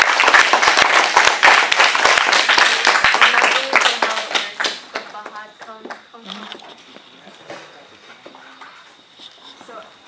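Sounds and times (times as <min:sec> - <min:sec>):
audience applauding: 0:00.0 - 0:05.8
voices: 0:02.6 - 0:10.0.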